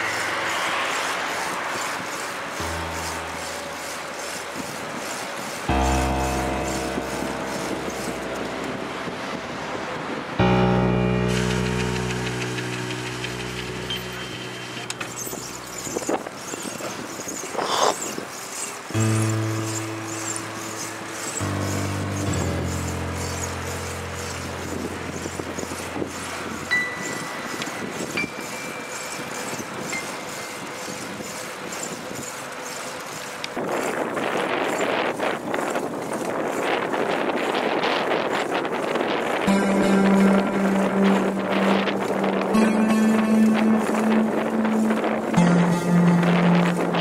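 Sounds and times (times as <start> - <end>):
road traffic noise: 0.0 - 47.0
held music chord: 2.5 - 16.5, 18.9 - 29.0, 39.2 - 47.0
wind rushing over microphone: 33.6 - 39.5.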